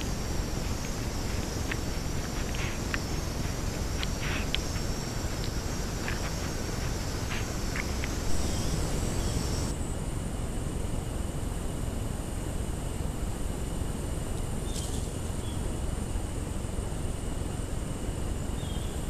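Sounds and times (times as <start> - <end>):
background hiss: 0.0 - 10.8
high insect drone: 0.0 - 19.0.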